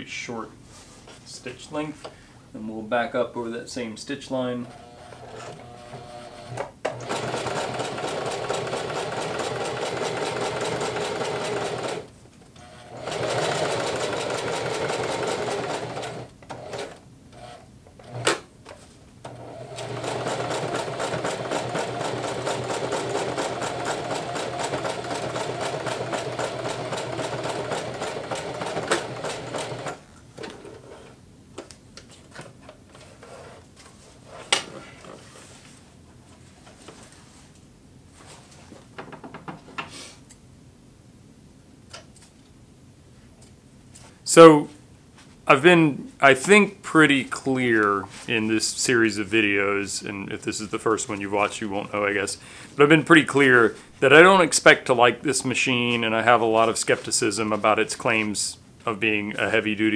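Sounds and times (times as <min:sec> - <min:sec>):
sewing machine stitching: 0:04.6 - 0:18.4, 0:19.3 - 0:30.0.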